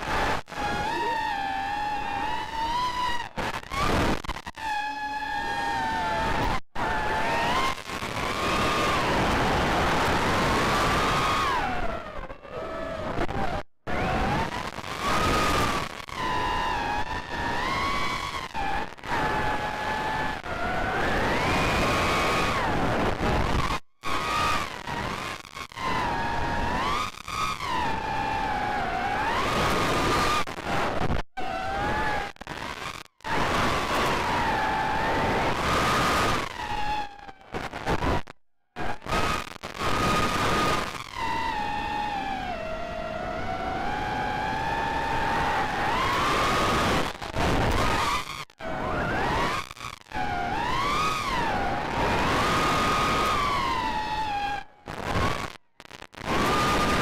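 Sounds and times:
quadcopter motors whining: 0.6s - 2.8s.

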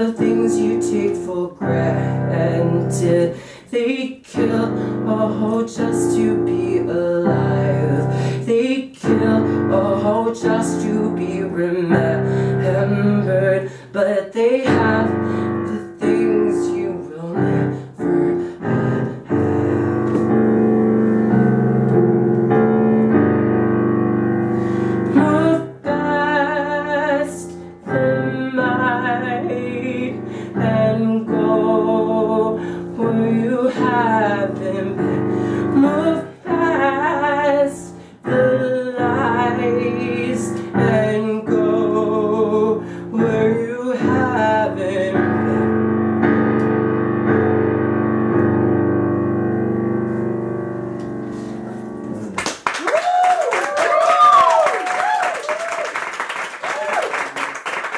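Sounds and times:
electric keyboard chords: 14.8s - 26.9s, 27.6s - 52.4s.

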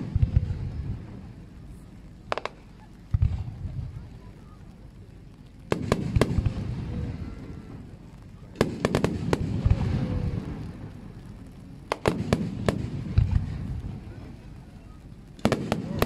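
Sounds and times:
low rolling rumble and echo: 0.0s - 16.0s
firework shells bursting: 2.2s - 4.1s, 8.5s - 16.0s.

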